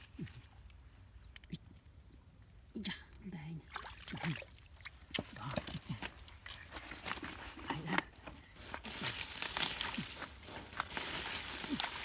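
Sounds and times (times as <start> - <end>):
rustling plants: 5.2 - 12.0.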